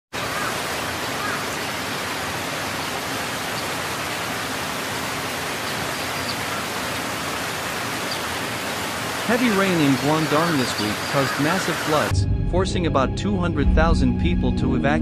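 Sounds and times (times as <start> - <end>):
floodwater rushing: 0.1 - 12.1.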